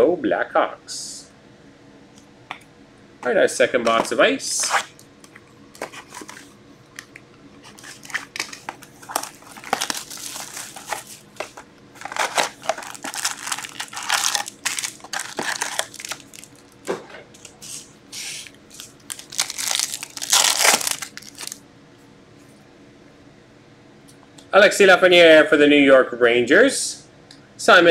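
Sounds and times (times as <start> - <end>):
foil packs crinkling: 7.7 - 16.9, 18.2 - 21.6
shrink wrap and cardboard being cut: 12.0 - 16.5, 18.2 - 21.6.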